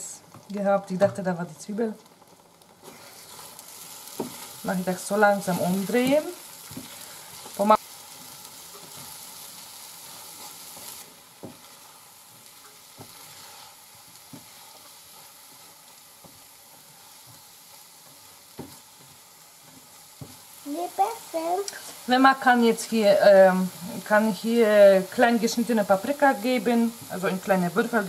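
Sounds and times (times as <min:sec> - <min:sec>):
eggs sizzling in frying pan: 0:00.0 - 0:28.0
spatula tapping pan: 0:10.7 - 0:11.7, 0:18.5 - 0:20.5.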